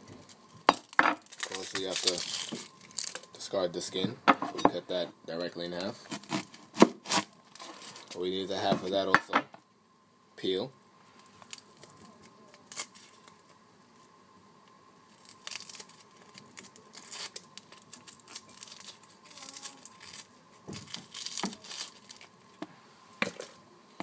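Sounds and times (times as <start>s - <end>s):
onion skin crinkling: 0.2s - 3.4s, 11.2s - 13.6s, 15.0s - 22.5s.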